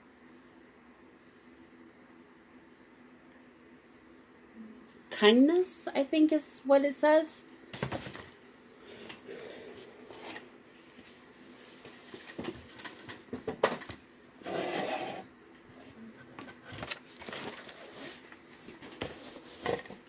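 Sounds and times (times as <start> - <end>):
paper rustling: 16.6 - 20.0.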